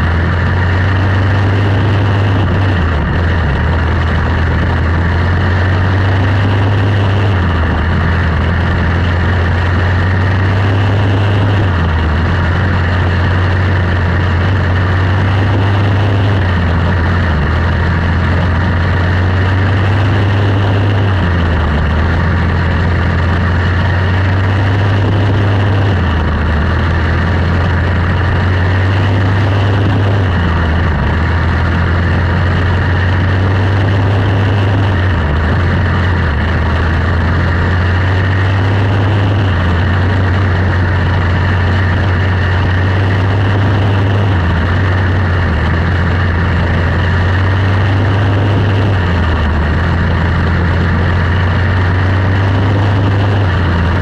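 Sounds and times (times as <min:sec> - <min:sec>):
race car engine running: 0:00.0 - 0:54.0
steady rush of noise: 0:00.0 - 0:54.0.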